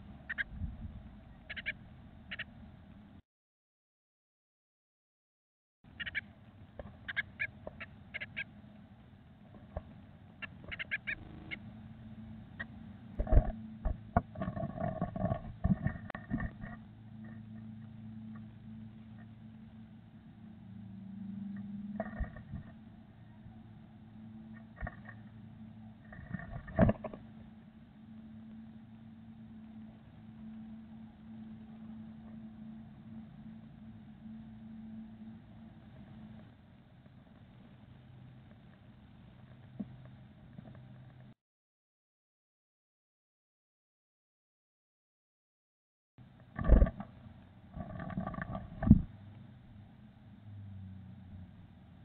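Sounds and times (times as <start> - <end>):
birds cheeping: 0.0 - 0.5, 1.3 - 2.6, 5.9 - 6.3, 7.0 - 8.5, 10.4 - 12.8
steady low hum: 0.0 - 3.2, 5.9 - 41.4, 46.2 - 52.0.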